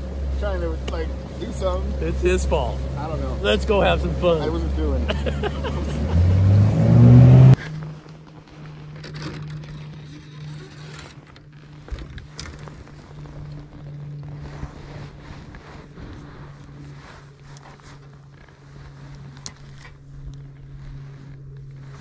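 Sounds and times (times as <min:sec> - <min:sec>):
outboard motor revving: 0:00.0 - 0:07.9
steady low hum: 0:00.0 - 0:22.0.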